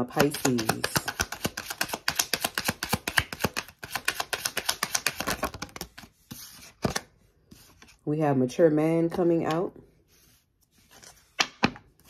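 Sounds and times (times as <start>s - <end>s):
cards being shuffled: 0.1s - 8.0s.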